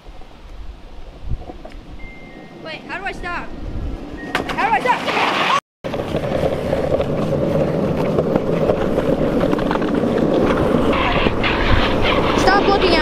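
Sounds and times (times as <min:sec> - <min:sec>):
skateboard wheels rolling on asphalt: 0:04.8 - 0:13.0.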